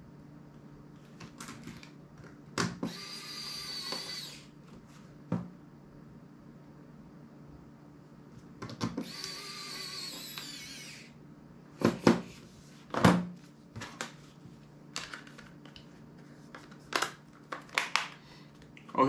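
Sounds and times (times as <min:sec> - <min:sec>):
electric screwdriver whirring: 0:02.8 - 0:04.5, 0:08.9 - 0:11.2.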